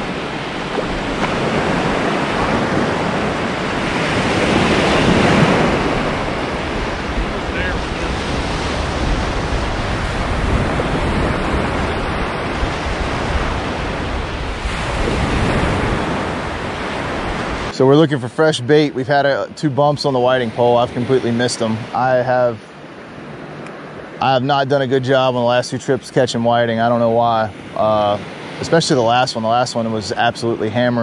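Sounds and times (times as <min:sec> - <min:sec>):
wind buffeting microphone: 0:00.0 - 0:17.8
ocean surf on beach: 0:00.0 - 0:31.0.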